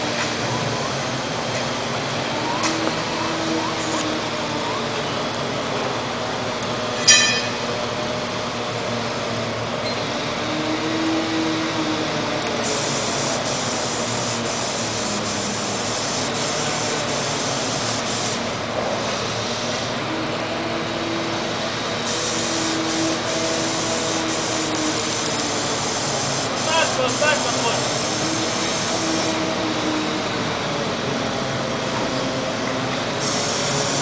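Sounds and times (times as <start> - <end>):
steady mechanical drone: 0.0 - 34.0
paint spray gun hissing: 12.6 - 18.5, 22.0 - 29.4, 33.2 - 34.0.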